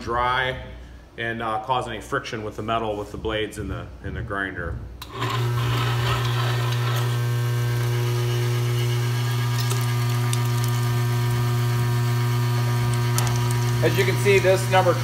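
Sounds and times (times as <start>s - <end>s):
electric meat grinder humming: 5.0s - 15.0s.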